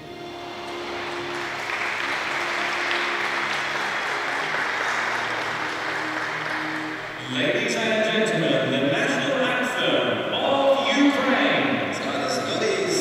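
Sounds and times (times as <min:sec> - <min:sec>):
quiet background music: 0:00.0 - 0:13.0
audience applauding: 0:00.3 - 0:07.8.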